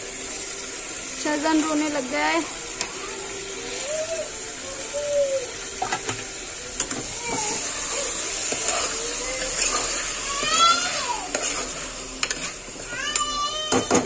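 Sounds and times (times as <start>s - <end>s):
food sizzling in hot oil: 0.0s - 14.0s
child crying: 3.0s - 5.7s, 7.0s - 11.3s, 12.8s - 14.0s.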